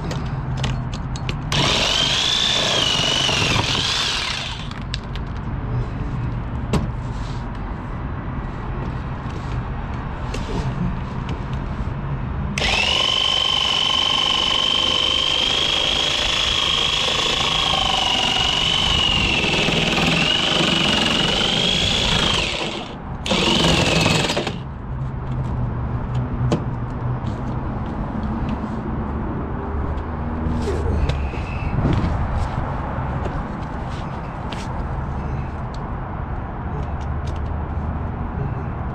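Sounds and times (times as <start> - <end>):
power tool cutting plastic: 1.5 - 4.8, 12.6 - 24.6.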